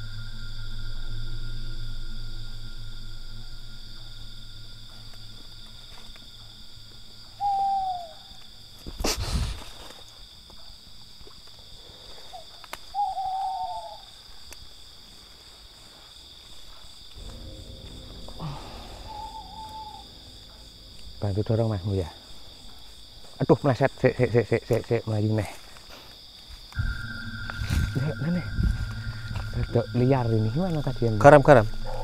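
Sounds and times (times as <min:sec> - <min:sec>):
night insects shrilling: 0:00.0 - 0:32.0
owl hooting: 0:07.0 - 0:09.5, 0:12.3 - 0:14.3, 0:17.2 - 0:23.3, 0:26.8 - 0:32.0.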